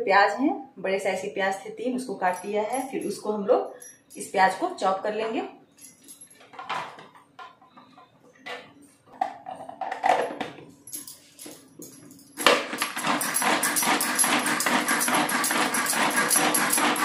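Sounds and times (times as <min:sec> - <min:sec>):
food chopper rattling: 0:12.4 - 0:17.0.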